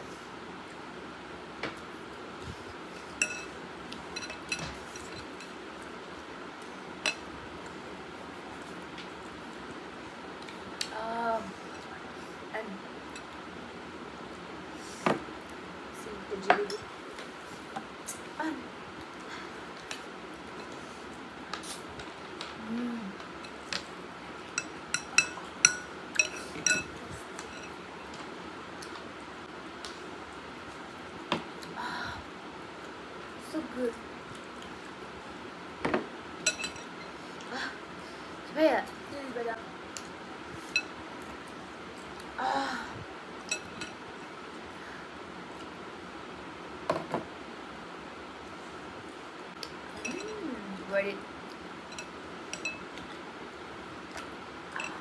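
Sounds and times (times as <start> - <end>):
room hiss: 0.0 - 55.0
metal spoon clinking against bowl: 24.6 - 26.9, 50.0 - 50.4, 51.9 - 52.8.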